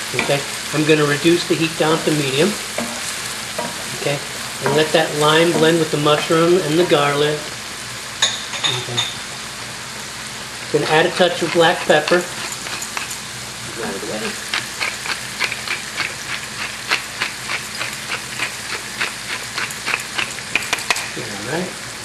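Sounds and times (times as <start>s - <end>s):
sauce sizzling in a skillet: 0.0s - 22.0s
wooden spoon stirring: 10.8s - 13.2s.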